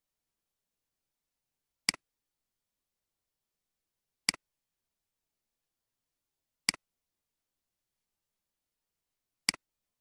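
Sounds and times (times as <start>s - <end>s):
computer mouse click: 1.8s - 2.1s, 4.2s - 4.5s.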